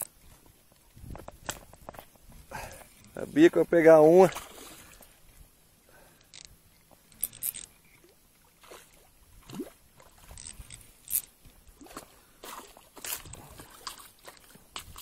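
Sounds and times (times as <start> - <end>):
handling clicks and scrapes: 6.2 - 8.0, 10.2 - 11.4.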